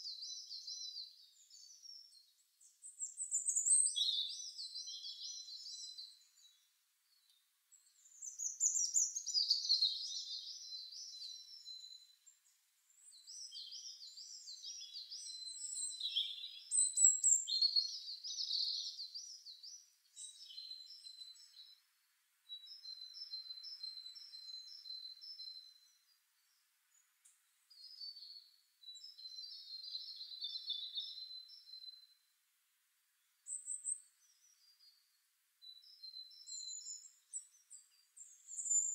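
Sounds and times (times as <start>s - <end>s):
songbird trilling and warbling: 7.8s - 21.8s, 35.8s - 38.9s.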